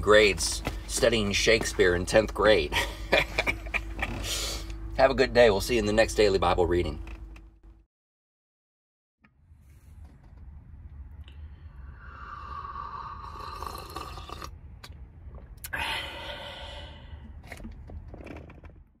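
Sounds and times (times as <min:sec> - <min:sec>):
person sipping a drink: 0:11.9 - 0:14.6.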